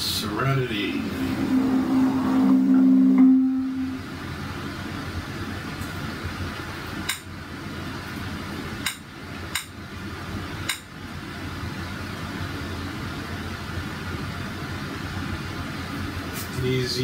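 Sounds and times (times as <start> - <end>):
low hum and hiss: 0.0 - 17.0.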